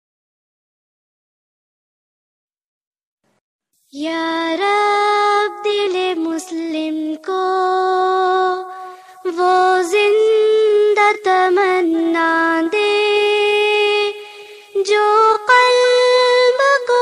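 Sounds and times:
high voice singing long notes: 3.9s - 17.0s.

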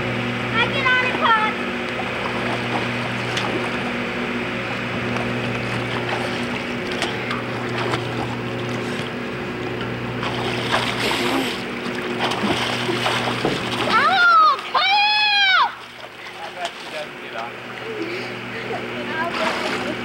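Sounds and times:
low mechanical hum: 0.0s - 20.0s
swimmers splashing water: 10.1s - 20.0s.

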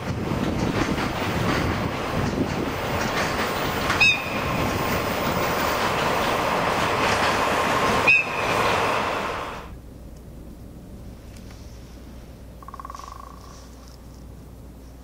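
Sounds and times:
train wheels rumbling on rails: 0.0s - 9.8s
sharp wheel squeals: 8.0s - 8.6s.

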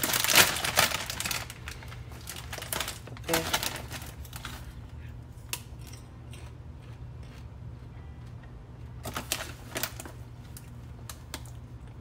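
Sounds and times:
plastic bag crinkling: 0.0s - 4.8s, 9.0s - 11.4s
popcorn crunching: 0.0s - 12.0s
steady low hum: 0.0s - 12.0s.

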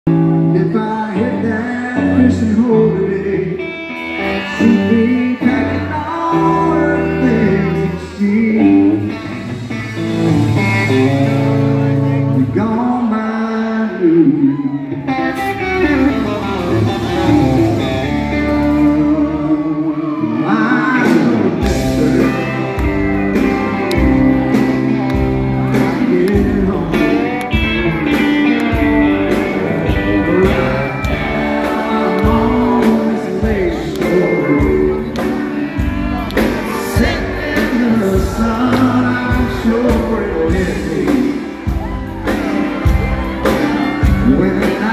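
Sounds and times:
guitar: 0.0s - 44.9s
man singing: 0.1s - 10.0s, 10.8s - 44.9s
steady drum beat: 21.0s - 44.9s.

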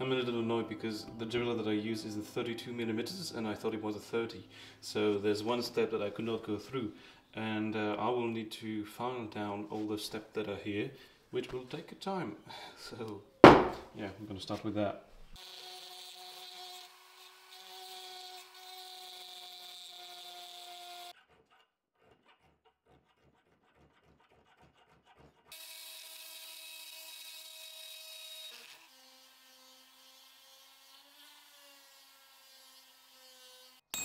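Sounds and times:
rotary tool grinding steel: 15.4s - 21.2s, 25.5s - 34.0s.

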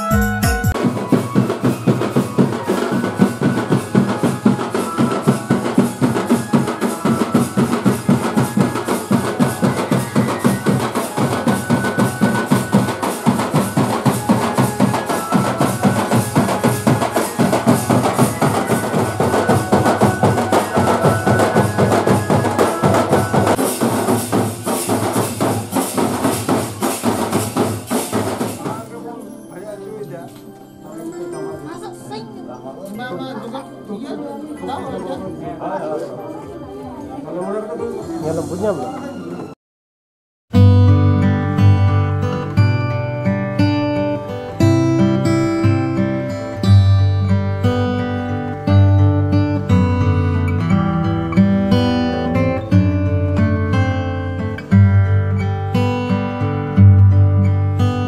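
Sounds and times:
drums beating: 0.0s - 29.2s
hand cymbals clashing: 23.4s - 29.0s
thin melody line: 28.8s - 37.6s.

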